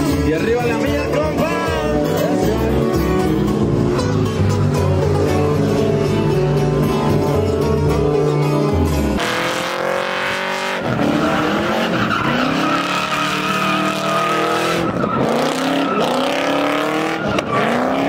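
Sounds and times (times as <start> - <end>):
truck engine revving: 0.0 - 18.0
tires spinning and squealing: 9.1 - 18.0.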